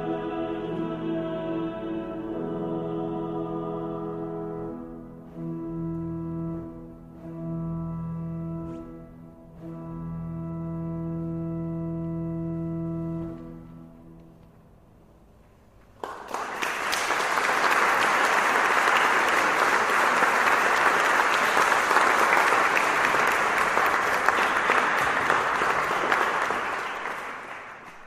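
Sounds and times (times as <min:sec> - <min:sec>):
audience applause: 0:16.0 - 0:28.0.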